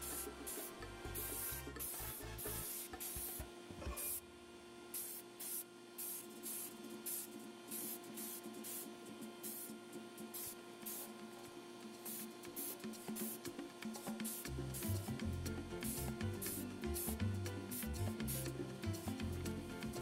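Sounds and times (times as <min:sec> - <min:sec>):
paint spray hissing bursts: 0:00.0 - 0:03.4, 0:04.9 - 0:09.7, 0:10.3 - 0:11.1, 0:12.0 - 0:13.5, 0:14.2 - 0:15.1, 0:15.9 - 0:18.5.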